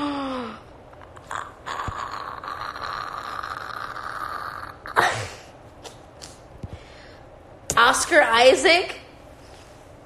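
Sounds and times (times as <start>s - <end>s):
woman's strained breathy vocal: 0.0s - 5.5s.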